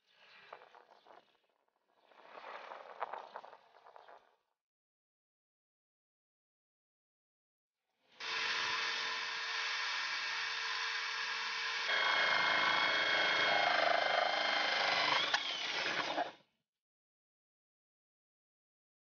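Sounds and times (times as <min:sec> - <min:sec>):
power tool whining: 0:08.2 - 0:16.4.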